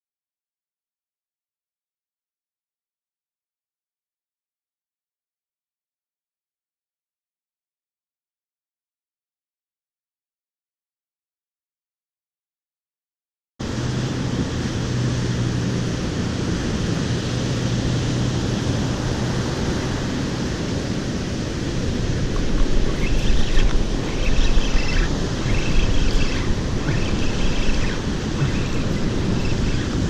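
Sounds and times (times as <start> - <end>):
surf breaking on beach: 13.6 - 30.0
wind buffeting microphone: 13.6 - 30.0
low rumble: 13.8 - 30.0.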